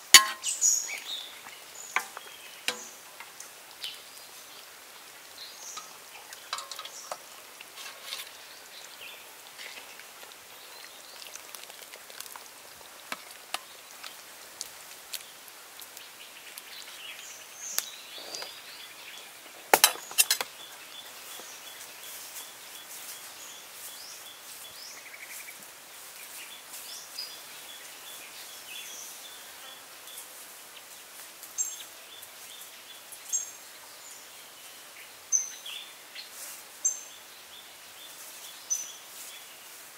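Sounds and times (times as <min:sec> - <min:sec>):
birds chirping: 0:00.0 - 0:07.4, 0:15.2 - 0:25.6
metal ladle clinking on wok: 0:00.2 - 0:00.6, 0:05.8 - 0:07.2.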